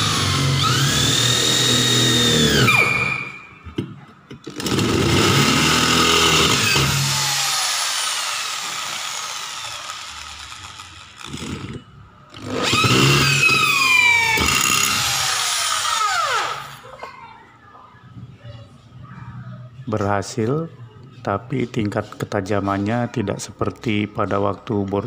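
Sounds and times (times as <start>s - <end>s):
electric drill drilling into steel tube: 0.0s - 3.2s, 4.5s - 16.8s.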